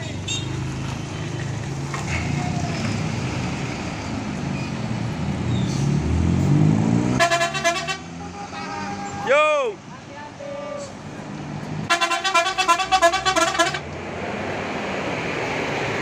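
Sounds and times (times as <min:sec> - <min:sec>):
diesel bus engine revving: 0:00.0 - 0:09.0, 0:11.2 - 0:16.0
bus horn: 0:07.1 - 0:09.4, 0:11.9 - 0:13.9.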